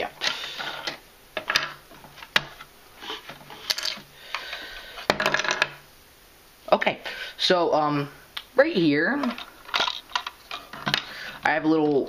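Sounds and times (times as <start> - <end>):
plastic bricks clicking and clattering: 3.6 - 4.5, 9.3 - 11.1.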